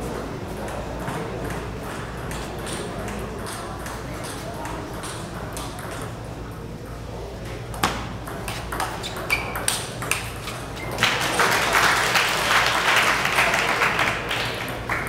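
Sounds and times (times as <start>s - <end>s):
crowd applauding: 10.9s - 15.0s.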